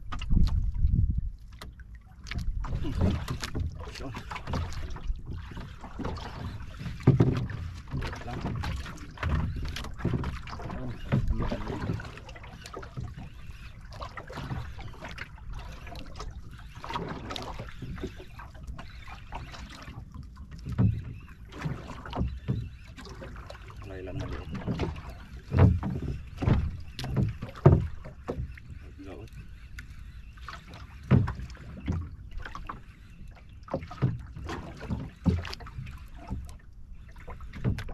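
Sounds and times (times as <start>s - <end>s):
wind buffeting microphone: 0.0s - 1.4s
water lapping at boat hull: 0.0s - 37.9s
thumps on boat hull: 25.5s - 28.5s.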